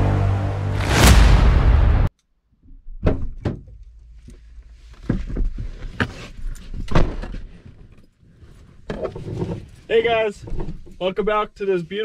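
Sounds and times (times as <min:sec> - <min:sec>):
knocks and thumps: 0:02.6 - 0:07.4.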